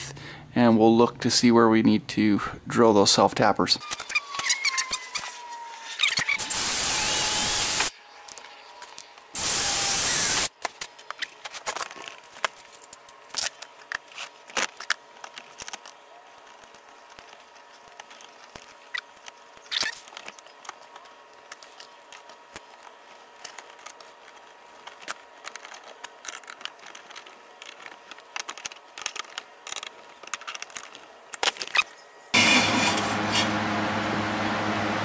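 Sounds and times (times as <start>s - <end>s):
cordless drill boring plastic: 3.8s - 10.5s, 32.4s - 33.5s.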